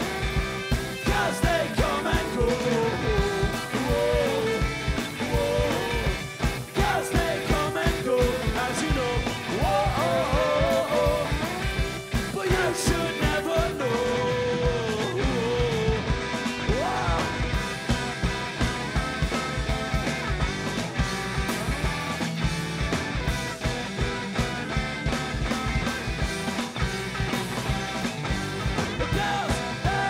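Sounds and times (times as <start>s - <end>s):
drums: 0.0s - 30.0s
electric guitars: 0.0s - 30.0s
person singing: 1.0s - 6.2s, 6.8s - 11.6s, 12.3s - 16.1s, 16.7s - 17.6s, 29.0s - 30.0s.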